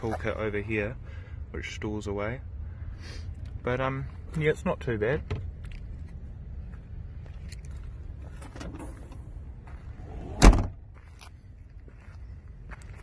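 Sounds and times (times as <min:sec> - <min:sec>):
car tailgate thump: 0:10.4 - 0:10.8.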